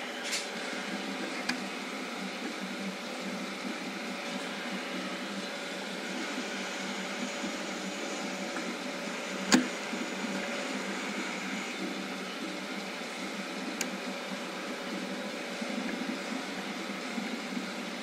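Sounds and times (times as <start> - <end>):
machinery humming: 0.0 - 18.0
sharp click: 9.5 - 9.7.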